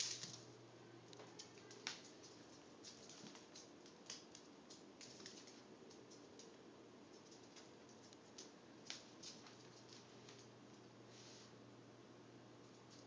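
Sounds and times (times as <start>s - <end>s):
dog claws ticking on tiles: 1.4s - 10.5s.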